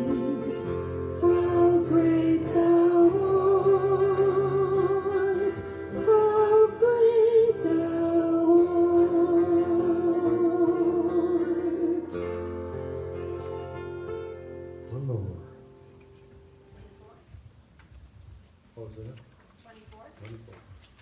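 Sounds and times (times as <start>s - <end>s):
man singing with vibrato: 0.0s - 12.8s
acoustic and electric guitars: 0.0s - 17.2s.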